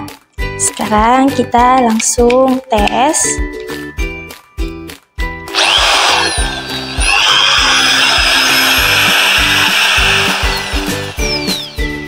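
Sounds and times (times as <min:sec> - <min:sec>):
electric drill motor whine: 0:05.5 - 0:12.0.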